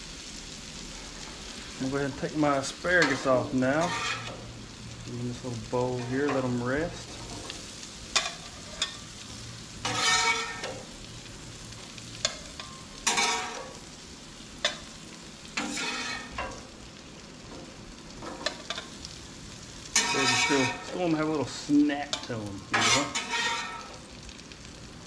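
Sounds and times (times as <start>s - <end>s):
food sizzling on griddle: 0.0s - 25.0s
metal spatula scraping: 2.7s - 4.5s, 5.7s - 9.0s, 9.8s - 10.9s, 12.2s - 13.9s, 15.5s - 16.6s, 19.8s - 21.4s, 22.0s - 24.0s.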